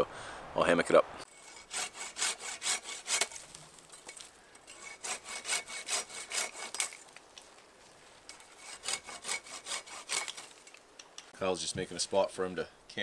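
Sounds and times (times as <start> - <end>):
pruning saw cutting wood: 1.2 - 3.6, 4.6 - 7.1, 8.3 - 10.8.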